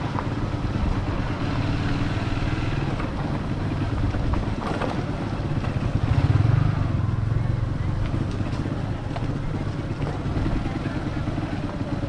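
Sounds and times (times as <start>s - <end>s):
road noise: 0.0s - 12.0s
vehicle engine running: 0.0s - 12.0s.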